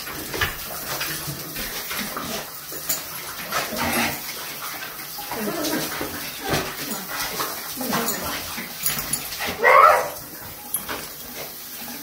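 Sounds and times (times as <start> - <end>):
shower water splashing on tiles: 0.0 - 12.0
dogs whining: 8.9 - 10.2.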